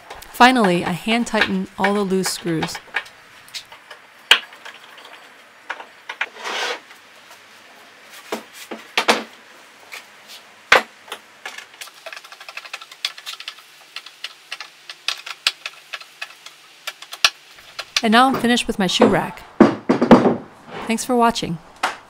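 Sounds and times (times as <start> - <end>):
short scrape: 6.3 - 6.8, 20.6 - 21.0
tool knocking on wood: 18.3 - 20.5.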